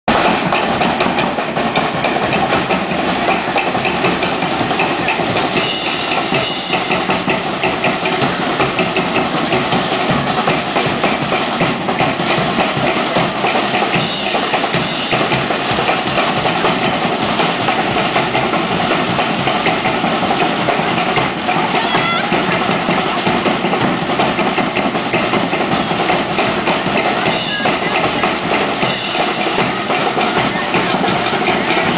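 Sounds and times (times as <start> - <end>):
fast steady drumbeat: 0.0 - 31.9.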